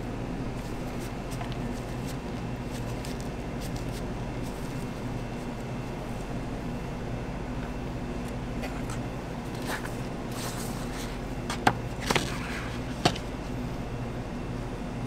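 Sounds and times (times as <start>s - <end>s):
low machine hum: 0.0s - 15.0s
paper rustling and crinkling: 0.6s - 5.7s, 9.5s - 13.4s.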